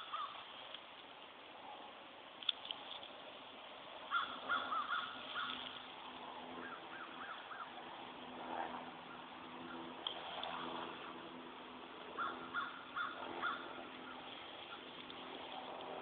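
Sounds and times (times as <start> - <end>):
turkeys yelping: 0.0 - 0.4, 4.1 - 5.8, 12.2 - 15.1.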